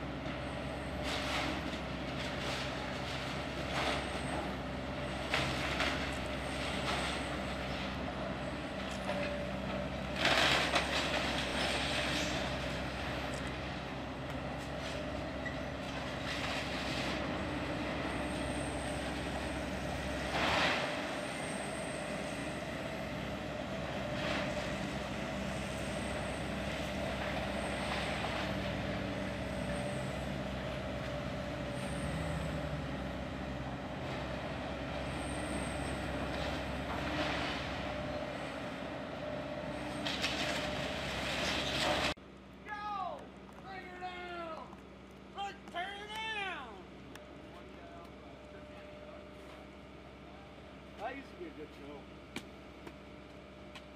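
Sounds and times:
excavator diesel engine running: 0.0s - 53.9s
falling debris crashing: 10.1s - 13.3s.

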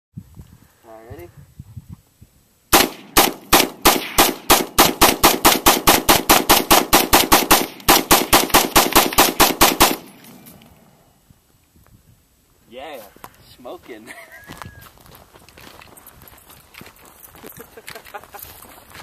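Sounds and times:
rifle firing rapid shots: 2.7s - 10.4s.

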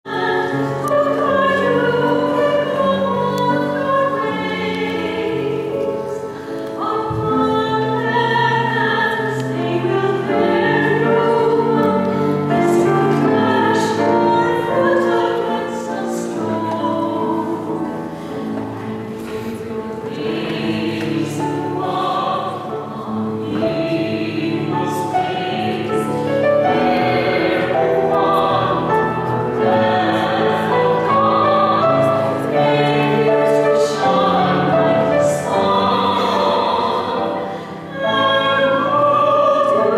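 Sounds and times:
man and woman singing duet: 19.4s - 39.9s.

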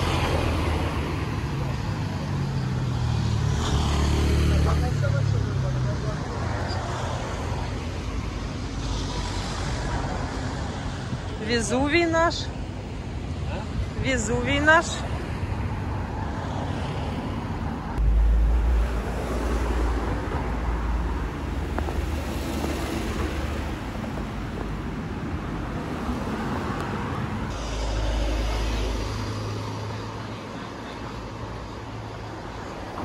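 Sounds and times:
cars driving past: 0.0s - 11.4s, 14.8s - 33.0s
heavy low rumble: 18.0s - 23.7s, 27.4s - 30.6s.

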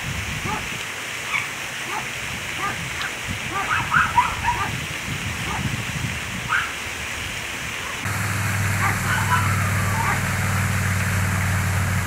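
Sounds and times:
outdoor hiss: 0.0s - 12.0s
engine idling hum: 8.1s - 12.0s.

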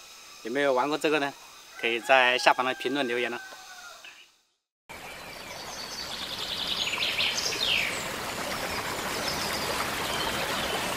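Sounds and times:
birds chirping: 3.3s - 10.9s
running water: 4.9s - 10.9s.

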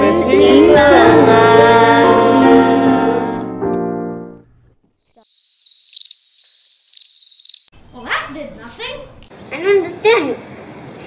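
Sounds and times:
children singing: 0.0s - 3.4s
crickets chirping: 5.0s - 7.8s.

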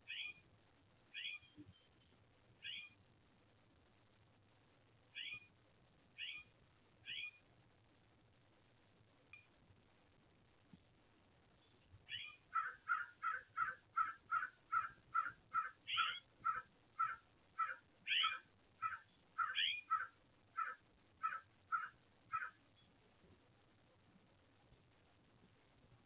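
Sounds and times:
bird calling: 1.2s - 1.8s, 2.6s - 3.0s, 5.2s - 5.5s, 6.2s - 7.4s, 12.1s - 22.6s.

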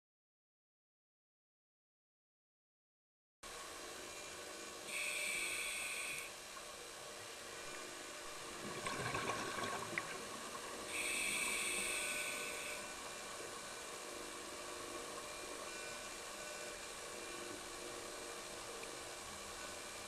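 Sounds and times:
hissing regulator inhalation: 4.9s - 6.3s, 10.9s - 13.0s
exhaled bubbles rushing: 8.6s - 10.5s.

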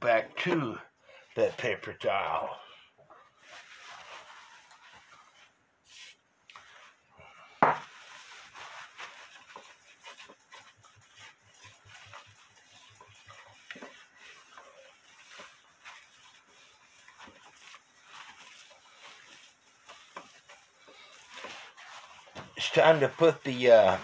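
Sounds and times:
paper towel rubbing on glass: 3.2s - 7.0s, 7.8s - 24.0s.

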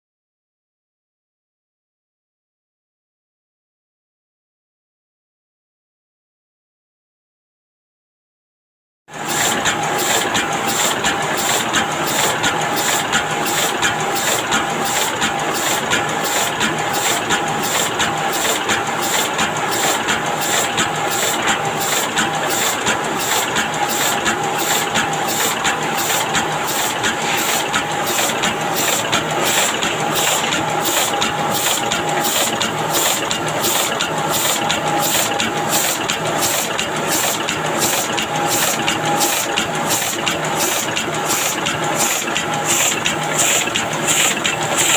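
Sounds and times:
printing press clatter: 9.2s - 44.9s.

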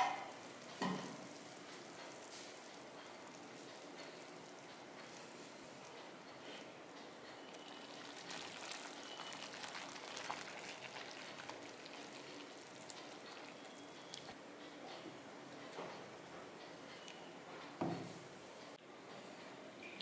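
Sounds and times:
wet squelching and sloshing: 7.5s - 14.3s.

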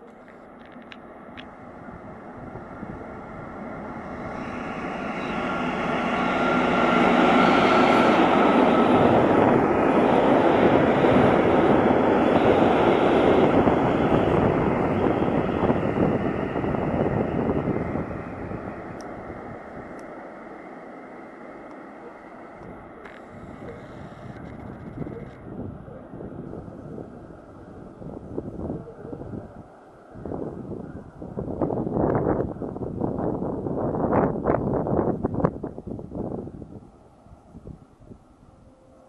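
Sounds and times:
train wheels on rails: 0.0s - 25.4s
diesel locomotive engine: 0.0s - 39.0s.

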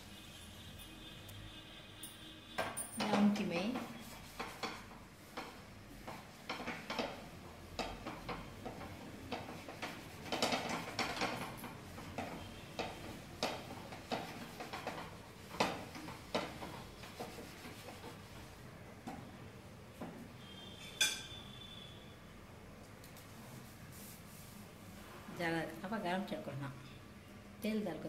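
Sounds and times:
utensil tapping metal pan: 2.7s - 18.0s.

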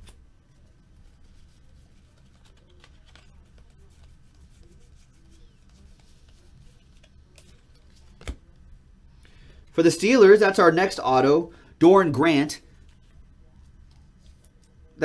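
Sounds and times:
trading cards being thumbed through: 2.1s - 4.1s.

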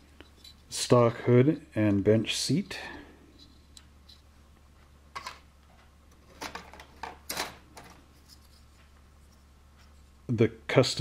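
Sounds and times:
steady low hum: 0.0s - 11.0s
plastic parts rustling and clicking: 5.1s - 8.8s.

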